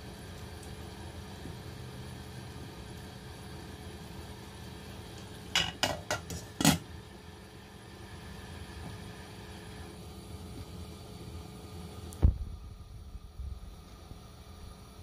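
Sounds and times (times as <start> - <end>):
steady low hum: 0.0 - 15.0
glass lid clinking on metal pot: 5.6 - 6.8.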